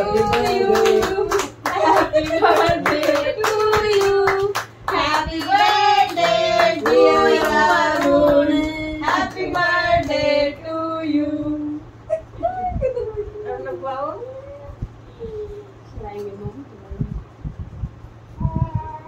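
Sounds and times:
people singing together: 0:00.0 - 0:11.8
people clapping in time: 0:00.1 - 0:08.4.

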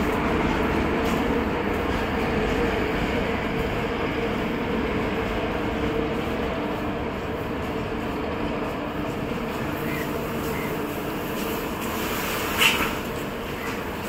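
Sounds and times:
train rumbling on track: 0:00.0 - 0:14.0.

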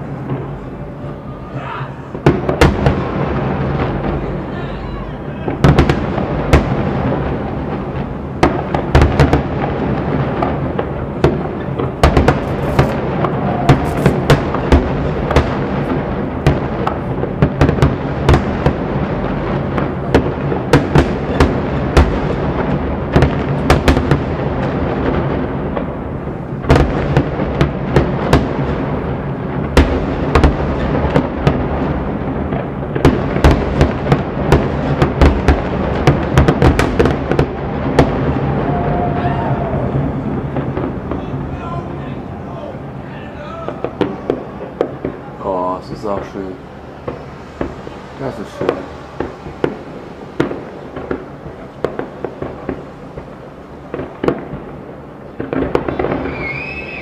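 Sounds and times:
firework shells bursting: 0:05.5 - 0:25.9, 0:43.7 - 0:57.0.

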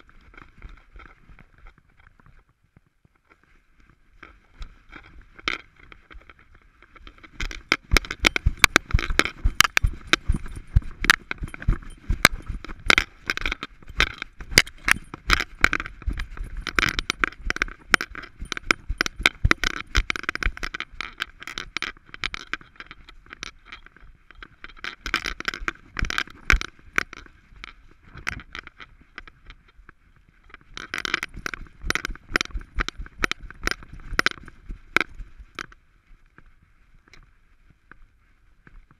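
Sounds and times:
dog harness hardware clicking: 0:07.2 - 0:26.7.

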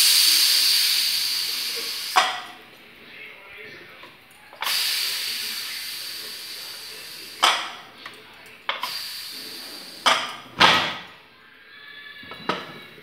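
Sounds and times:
steam hissing from pressure cooker: 0:00.0 - 0:02.6, 0:04.6 - 0:08.0, 0:08.7 - 0:11.1.

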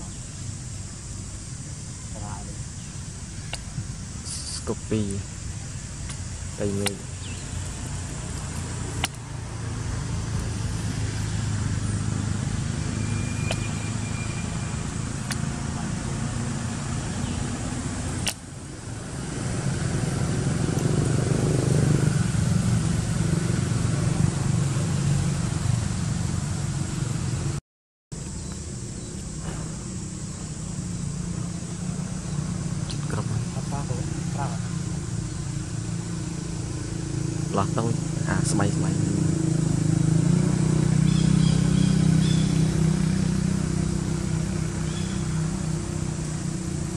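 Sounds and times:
low engine rumble: 0:00.0 - 0:46.9.

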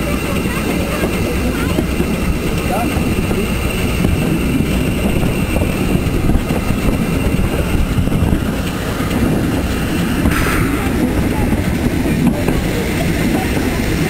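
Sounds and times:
steam locomotive rumbling: 0:00.0 - 0:14.0
train wheels on rails: 0:00.0 - 0:14.0
brief sharp sound: 0:10.3 - 0:12.1.

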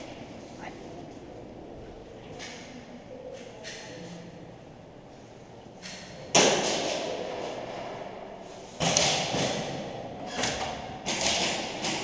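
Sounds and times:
pellets hitting plywood walls: 0:08.8 - 0:12.0.

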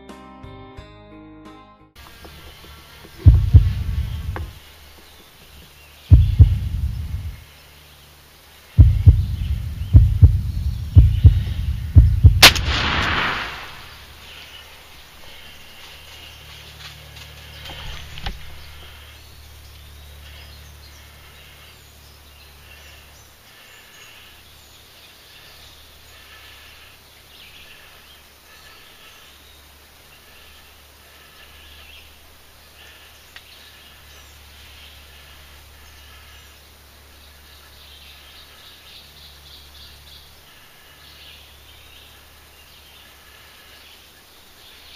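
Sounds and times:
faint birdsong: 0:02.0 - 0:44.9
insects: 0:02.0 - 0:44.9
heavy low thumps: 0:03.2 - 0:04.6, 0:06.1 - 0:07.4, 0:08.8 - 0:13.9
shotgun blast echoing: 0:12.2 - 0:14.2.

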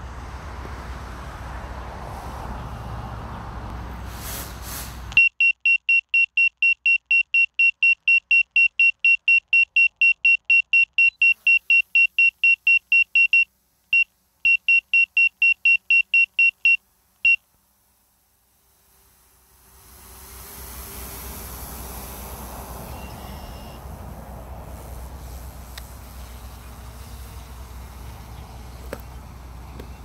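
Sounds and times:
rapid electronic alert beeping: 0:05.2 - 0:13.4, 0:14.5 - 0:16.8
drone motors spinning: 0:19.5 - 0:23.9.

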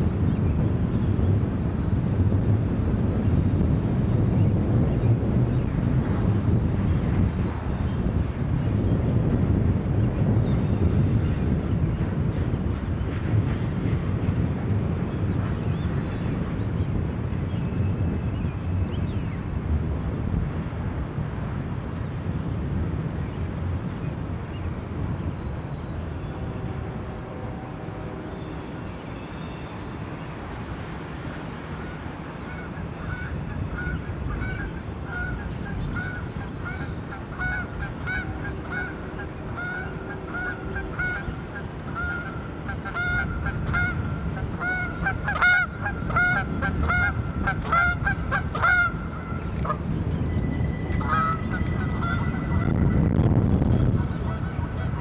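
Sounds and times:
freight train rumbling past: 0:26.0 - 0:55.0
geese honking: 0:32.5 - 0:49.8, 0:51.0 - 0:53.0, 0:53.8 - 0:55.0.

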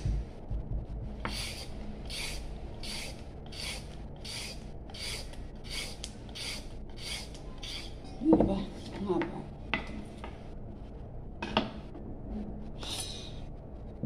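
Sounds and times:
peeler scraping carrot: 0:01.3 - 0:08.0.

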